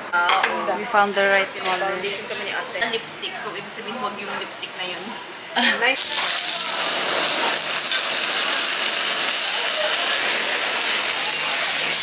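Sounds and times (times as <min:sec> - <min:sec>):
meat sizzling on griddle: 0:06.0 - 0:12.0
torch hissing: 0:06.0 - 0:12.0.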